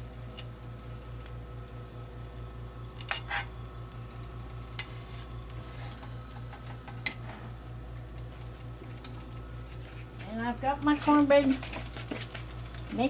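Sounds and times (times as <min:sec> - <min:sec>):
steady low hum: 0:00.0 - 0:13.0
spatula scraping a frying pan: 0:03.0 - 0:03.5.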